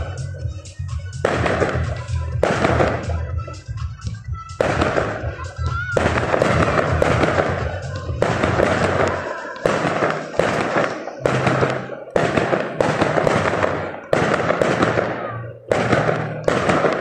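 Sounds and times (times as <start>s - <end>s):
crackling firework stars: 0.0s - 17.0s
firework shells bursting: 1.2s - 3.2s, 4.6s - 17.0s.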